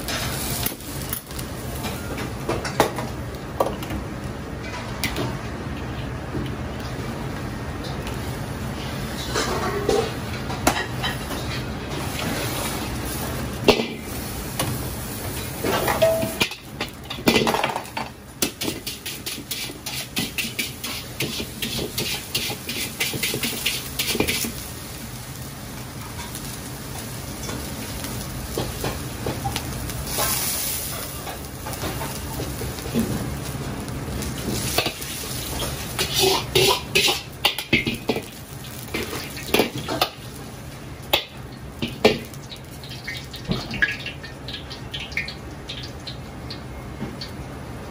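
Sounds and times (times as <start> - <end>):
sizzling: 0.0 - 47.9
gas burner rushing: 6.2 - 42.3
wok scraping strokes: 11.1 - 13.4, 18.6 - 24.6, 34.4 - 37.4.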